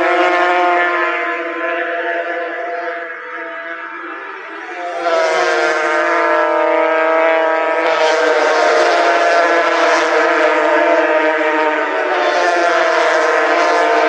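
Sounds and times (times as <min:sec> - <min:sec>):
motorcycle engines whining: 0:00.0 - 0:14.0.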